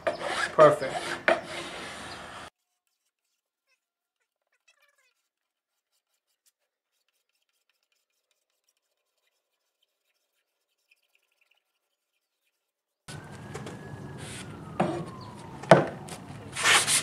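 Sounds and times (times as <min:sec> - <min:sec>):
hand file scraping laminate: 0:00.0 - 0:03.4, 0:16.1 - 0:17.0.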